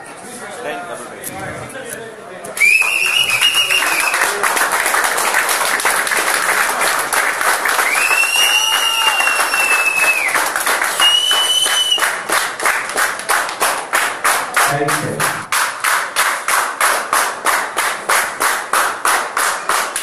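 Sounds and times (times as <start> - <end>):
long high whistles: 2.6 - 4.2, 7.8 - 10.4, 11.0 - 12.1
audience clapping: 2.6 - 20.0.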